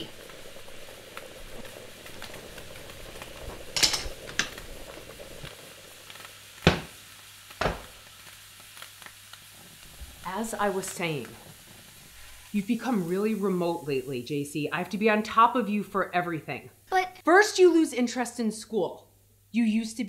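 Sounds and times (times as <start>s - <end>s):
loud hiss: 0.0s - 14.5s
food sizzling on stove: 0.0s - 17.2s.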